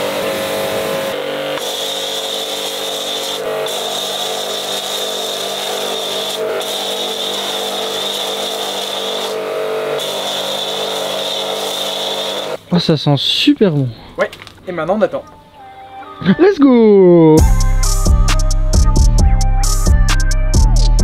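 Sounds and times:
pressure washer motor hum: 0.0s - 12.6s.

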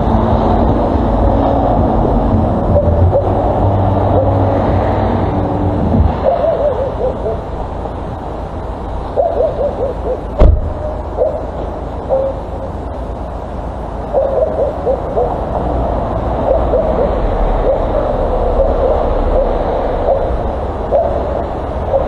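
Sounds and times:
low hum: 0.0s - 9.2s
steady background noise: 0.0s - 22.0s
sharp knock: 10.4s - 10.8s
wavering hoot-like animal calls: 16.4s - 20.4s.

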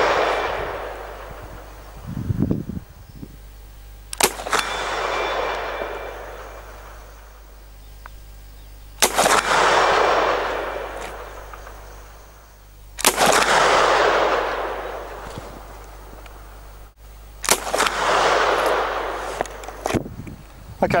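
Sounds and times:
bullet striking steel target: 0.0s - 1.9s, 4.1s - 7.5s, 9.0s - 12.2s, 13.0s - 15.7s
rifle shots: 0.0s - 2.1s, 3.9s - 7.8s, 9.0s - 16.4s, 17.4s - 20.0s
long rolling echo: 0.0s - 19.9s.

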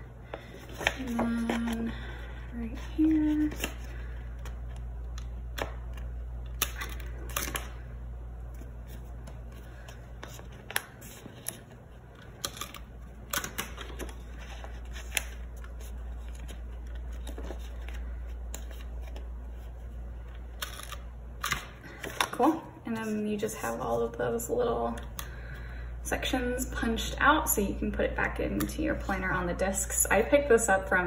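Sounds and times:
paper rustling: 8.6s - 19.9s.

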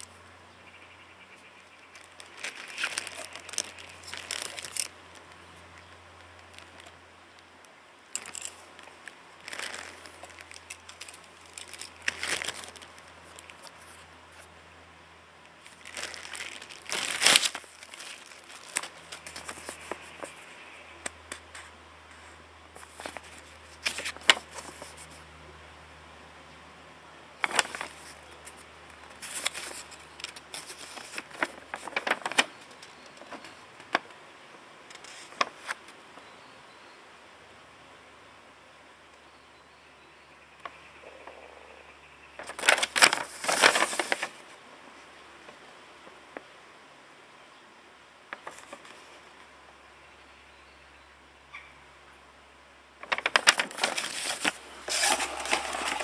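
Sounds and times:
crinkling and rustling of parts: 1.9s - 7.5s, 8.1s - 14.5s, 15.6s - 20.4s, 21.3s - 25.2s, 27.4s - 34.1s, 42.4s - 44.4s, 53.0s - 56.0s.

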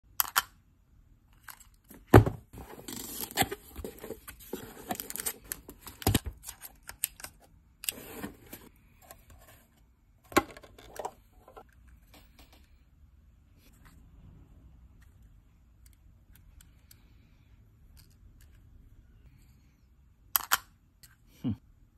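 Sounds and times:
packaging rustling and scraping: 2.6s - 6.7s, 7.9s - 8.7s.

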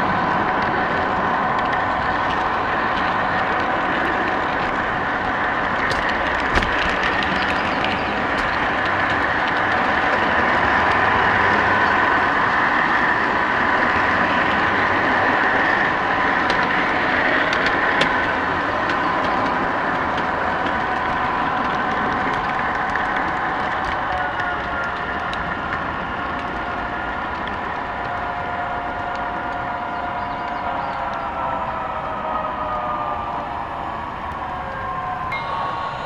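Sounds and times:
model train whirring: 0.0s - 32.1s
faint high whine: 34.0s - 36.0s.

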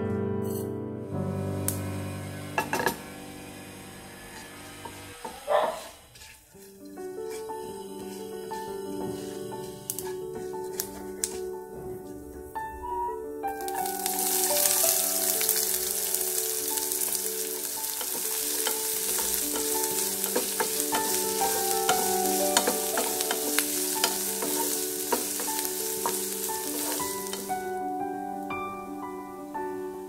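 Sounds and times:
onions sizzling in oil: 1.4s - 11.4s, 13.5s - 30.0s
wooden spatula scraping pan: 4.2s - 11.4s, 17.0s - 27.6s.

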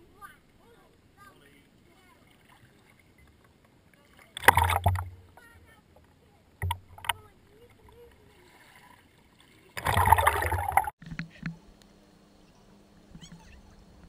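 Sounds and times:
rush of water: 0.0s - 11.0s
seawater splashing: 0.0s - 11.0s
faint low hum: 0.0s - 14.0s.

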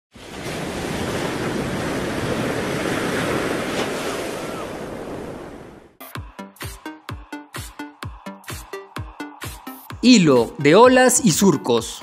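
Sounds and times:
ocean waves breaking: 0.1s - 6.0s
music with steady beat: 6.0s - 12.0s.

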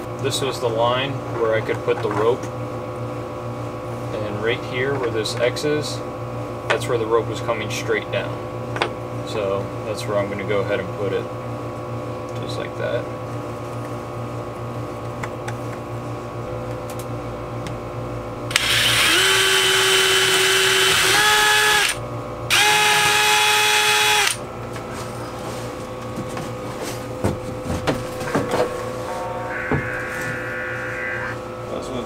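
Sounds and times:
power drill drilling wood: 18.5s - 24.4s.

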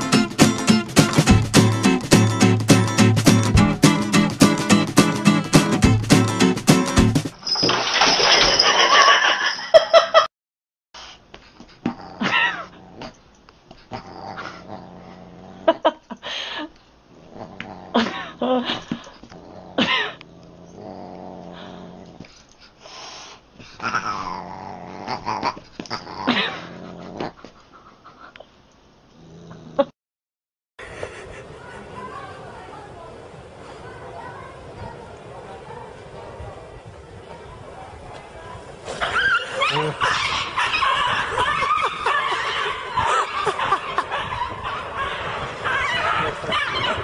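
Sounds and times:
background noise: 11.0s - 29.9s, 30.8s - 47.0s
low growling: 11.9s - 13.2s, 13.9s - 15.8s, 17.1s - 18.6s, 19.3s - 22.3s, 23.8s - 27.4s, 29.1s - 29.9s
person laughing: 18.0s - 19.0s, 30.8s - 31.8s, 40.9s - 44.4s.

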